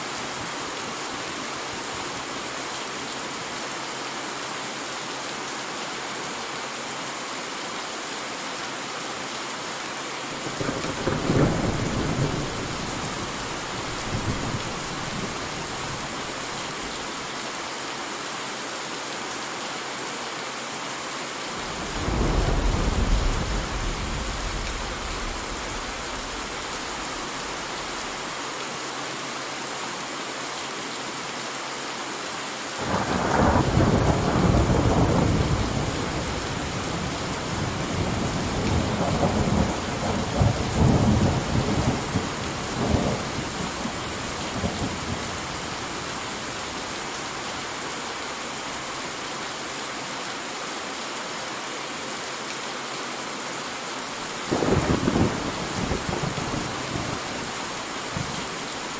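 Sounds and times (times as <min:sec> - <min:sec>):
steady rain: 0:00.0 - 0:58.9
thunder rumbling: 0:10.5 - 0:16.5, 0:21.6 - 0:28.2, 0:54.4 - 0:57.5.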